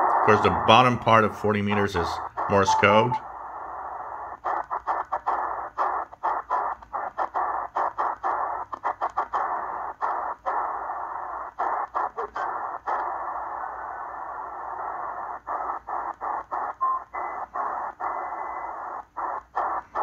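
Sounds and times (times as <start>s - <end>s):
muffled radio static hiss: 0.0s - 7.6s.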